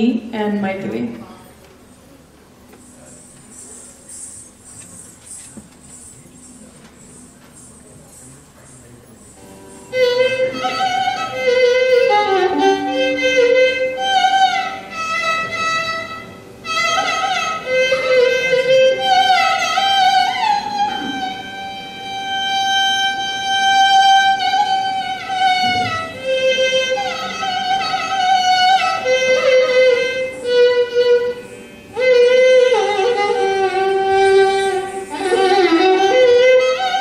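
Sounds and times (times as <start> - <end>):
violin playing slow melody: 9.2 - 37.0.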